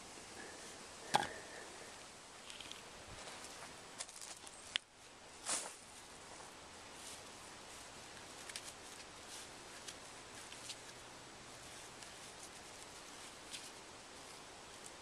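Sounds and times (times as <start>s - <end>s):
cord being pulled and rustled: 7.0s - 15.0s.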